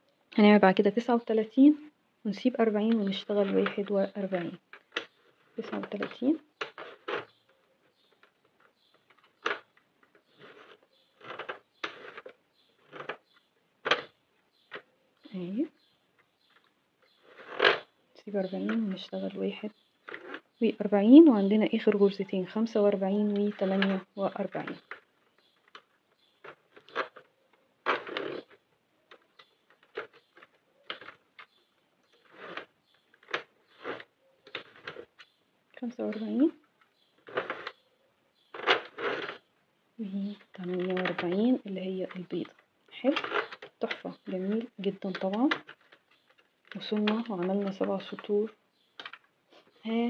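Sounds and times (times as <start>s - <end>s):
knitting machine clicks and rustles: 2.6s - 14.8s, 20.0s - 20.6s, 22.9s - 37.8s, 38.5s - 39.4s, 40.2s - 49.3s.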